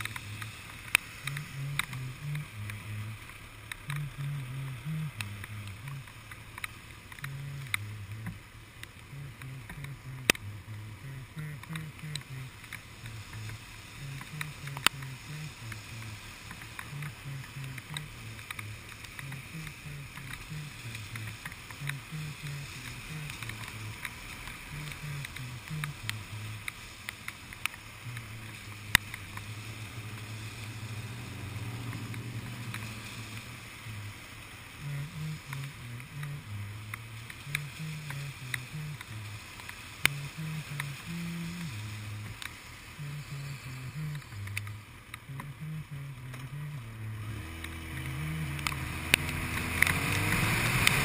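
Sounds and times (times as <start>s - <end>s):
raindrops ticking on camera: 0.0s - 51.0s
traffic hiss on wet road: 0.0s - 51.0s.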